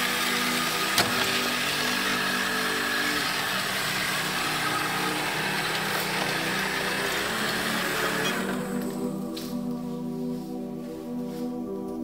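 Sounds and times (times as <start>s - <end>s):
robot vacuum whirring: 0.0s - 9.5s
background music sustained notes: 0.0s - 12.0s.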